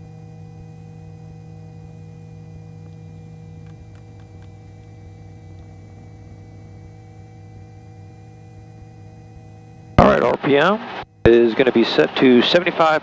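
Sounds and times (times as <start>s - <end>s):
helicopter engine and rotor hum: 1.3s - 13.0s.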